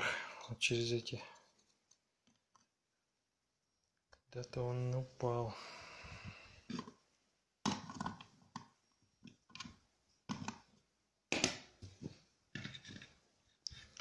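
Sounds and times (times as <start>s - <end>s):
plastic clicks and knocks: 7.6s - 10.7s
taps and clatters on hard table: 11.3s - 13.1s.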